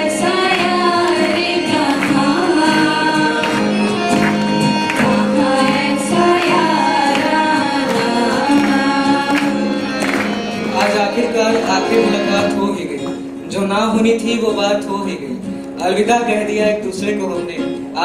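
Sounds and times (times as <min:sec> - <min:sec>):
girls singing together: 0:00.0 - 0:10.2
instrumental backing with percussion: 0:00.4 - 0:13.5.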